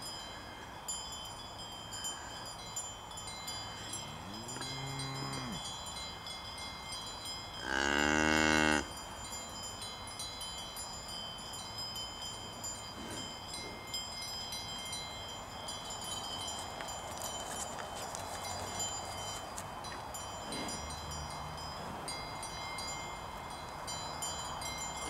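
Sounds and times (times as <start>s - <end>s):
cowbells ringing: 0.0s - 25.0s
cow mooing: 4.1s - 5.6s, 7.6s - 8.9s.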